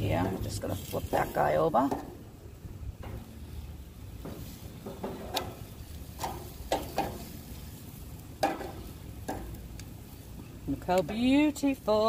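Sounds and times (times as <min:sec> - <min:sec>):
low steady hum: 0:00.0 - 0:12.0
metal tongs clacking on grate: 0:03.0 - 0:03.5, 0:04.2 - 0:09.9.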